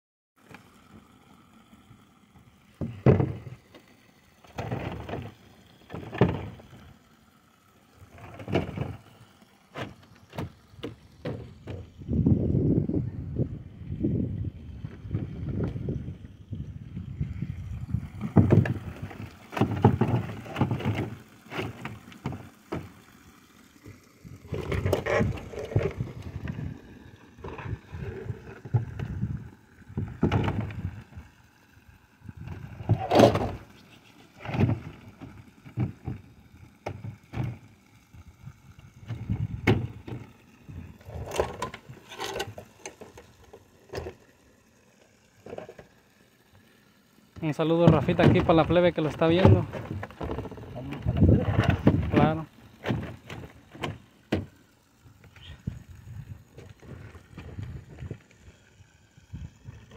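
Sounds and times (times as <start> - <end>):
wind buffeting microphone: 11.8 - 19.0.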